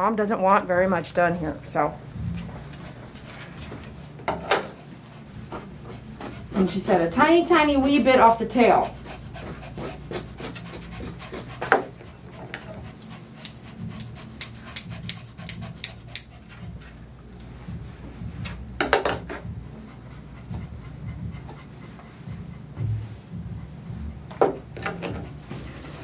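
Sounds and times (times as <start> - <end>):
dog panting: 4.6 - 17.1, 19.4 - 26.0
scissors snipping: 13.0 - 17.0.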